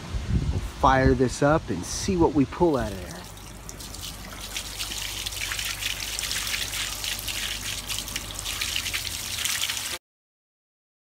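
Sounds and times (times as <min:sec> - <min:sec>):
water gushing and splashing on ground: 0:02.8 - 0:10.0.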